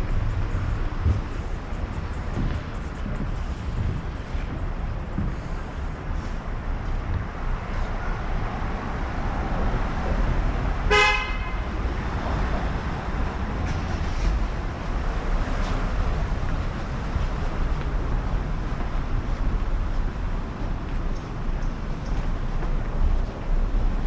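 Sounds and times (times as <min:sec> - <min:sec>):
low rumble of traffic: 0:00.0 - 0:24.0
wind: 0:00.0 - 0:24.0.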